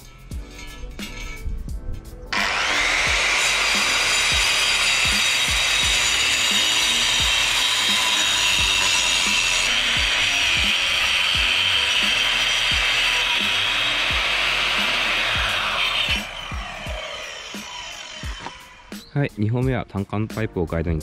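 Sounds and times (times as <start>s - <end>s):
thumping background music: 0.3s - 21.0s
electric cutter cutting asphalt: 2.3s - 19.1s.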